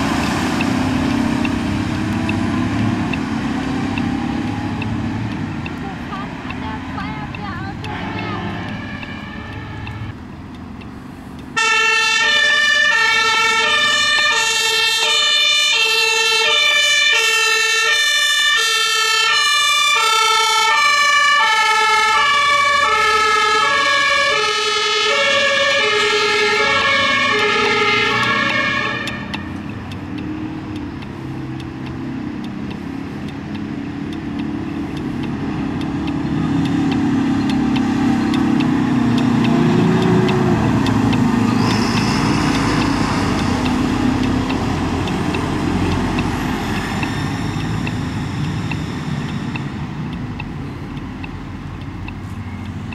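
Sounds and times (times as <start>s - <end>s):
truck engine: 0.0s - 52.9s
fire engine two-tone siren: 6.3s - 10.2s, 11.5s - 52.9s.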